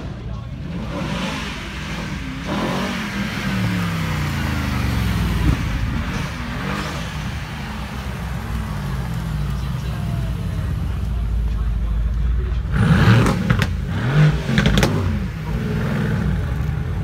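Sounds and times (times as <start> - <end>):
car engine approaching and revving: 0.0 - 10.9, 12.6 - 17.0.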